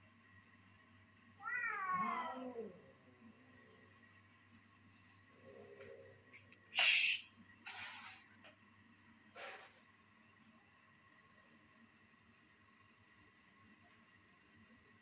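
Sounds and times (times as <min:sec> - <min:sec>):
cat growling: 0:01.4 - 0:03.8
cat hissing: 0:06.8 - 0:08.3, 0:09.3 - 0:09.8.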